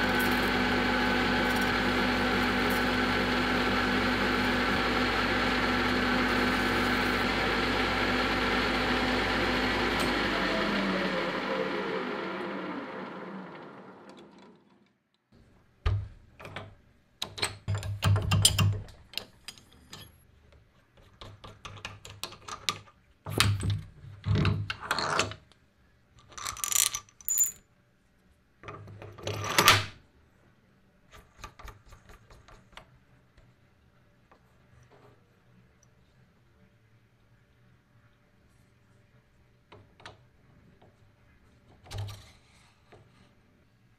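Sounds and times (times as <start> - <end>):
lathe running down: 0.0 - 14.8.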